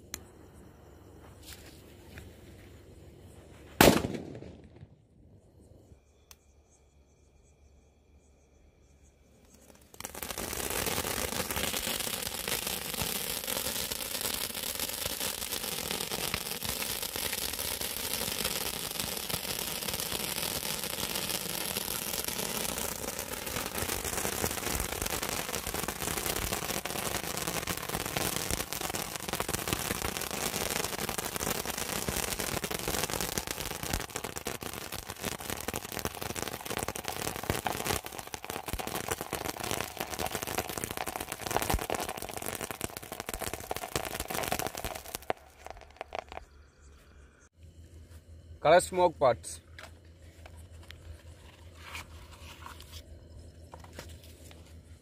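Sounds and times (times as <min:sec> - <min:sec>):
firework hissing and crackling: 0:09.5 - 0:46.4.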